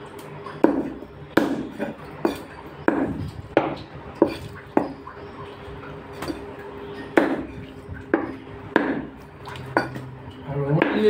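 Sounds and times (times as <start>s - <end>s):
cleaver chopping chicken: 0.6s - 5.0s, 7.2s - 7.5s, 8.1s - 9.2s, 10.7s - 11.0s.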